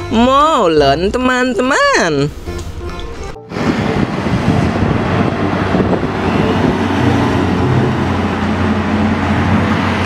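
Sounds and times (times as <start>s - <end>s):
road traffic noise: 0.0s - 10.0s
truck engine drone: 0.0s - 10.0s.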